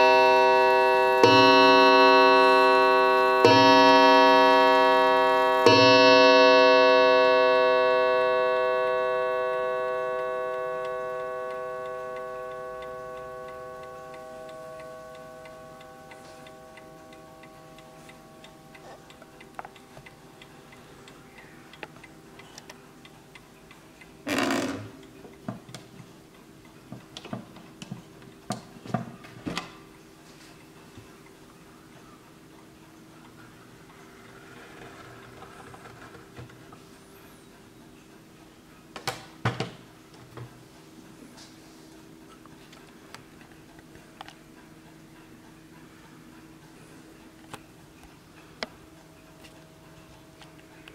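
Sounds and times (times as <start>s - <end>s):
clock gong ringing: 0.0s - 20.4s
clock ticking: 0.0s - 28.8s.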